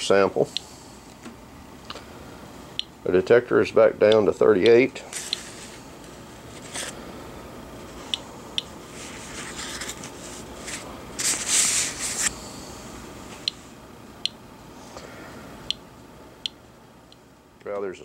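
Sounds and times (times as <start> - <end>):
scraping and rustling: 8.8 - 12.3.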